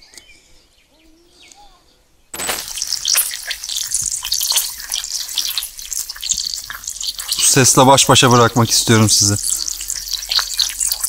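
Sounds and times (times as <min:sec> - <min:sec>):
faint bird chirps: 0:00.0 - 0:02.3
meat sizzling in oil: 0:02.4 - 0:11.0.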